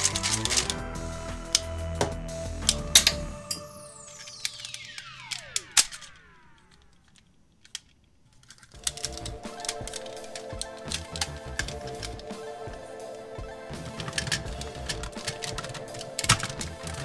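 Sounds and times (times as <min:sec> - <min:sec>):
background music: 0:00.0 - 0:06.8, 0:08.8 - 0:17.0
plastic toy clicks and snaps: 0:04.2 - 0:12.1.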